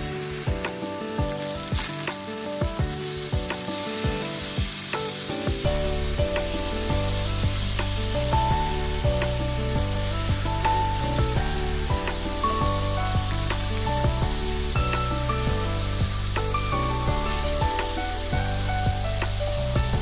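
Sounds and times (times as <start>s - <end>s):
chicken sizzling in grill pan: 0.0s - 20.0s
soft background music: 0.0s - 20.0s
bass line: 5.6s - 20.0s.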